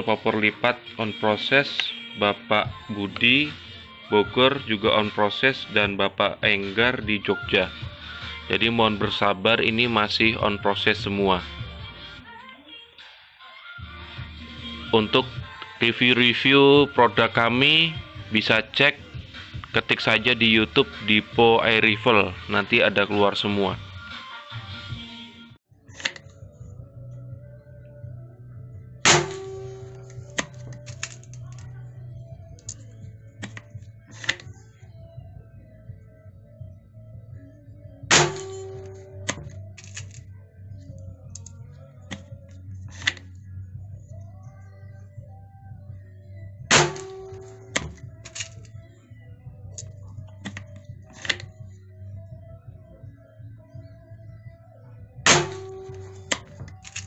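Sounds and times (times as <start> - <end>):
background music: 0.0 - 57.0
air rifle shot: 29.1 - 29.7.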